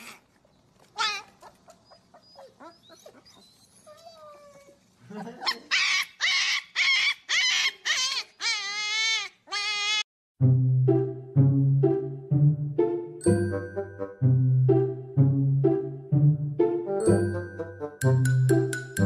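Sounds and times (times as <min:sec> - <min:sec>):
puppy whining: 0:00.8 - 0:04.8, 0:05.4 - 0:10.1.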